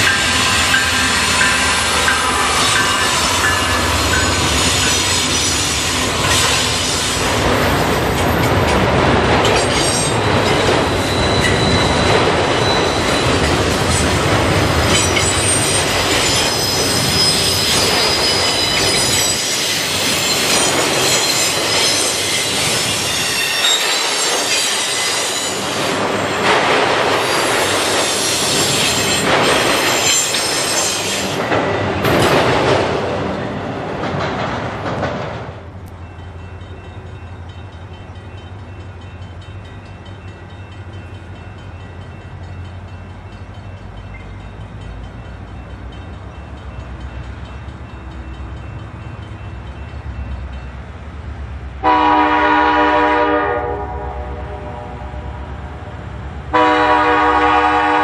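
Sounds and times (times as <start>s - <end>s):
steel wheel squeal: 0.0s - 7.2s, 9.6s - 14.2s, 14.8s - 25.8s
wheels clacking over rail joints: 0.0s - 38.2s.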